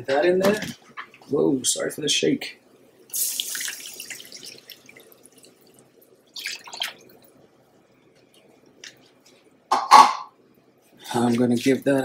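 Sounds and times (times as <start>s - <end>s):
liquid poured into hot pan hissing: 3.1s - 5.5s
liquid splashing: 3.1s - 7.4s, 11.2s - 12.0s.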